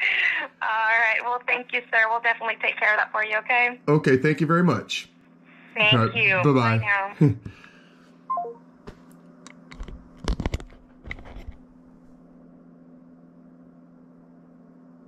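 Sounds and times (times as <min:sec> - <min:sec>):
steady low hum: 0:00.0 - 0:15.0
phone falling three-note beep: 0:08.3 - 0:08.6
clicks and knocks of handling: 0:09.5 - 0:11.6.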